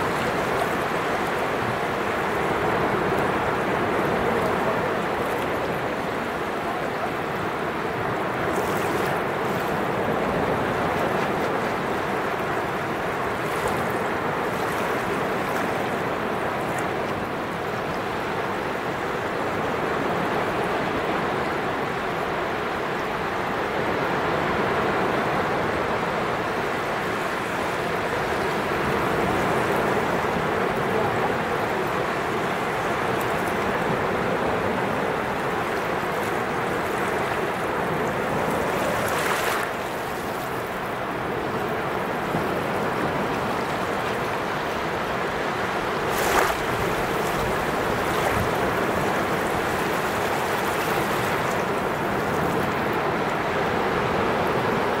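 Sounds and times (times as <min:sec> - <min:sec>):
small waves washing over sand: 0:00.0 - 0:55.0.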